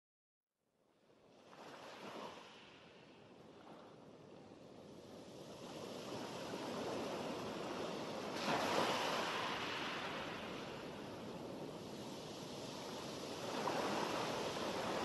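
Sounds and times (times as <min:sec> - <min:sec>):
sea waves breaking: 0:04.8 - 0:15.0.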